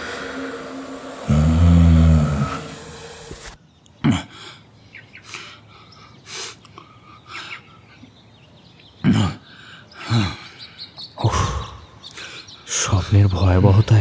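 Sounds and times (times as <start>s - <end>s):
man breathing hard: 0.0s - 3.3s, 4.2s - 8.0s, 9.4s - 12.6s.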